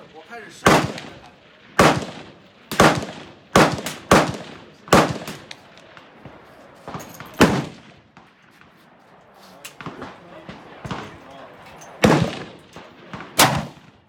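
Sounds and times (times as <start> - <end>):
rifle shots: 0.5 - 8.3, 12.0 - 14.0.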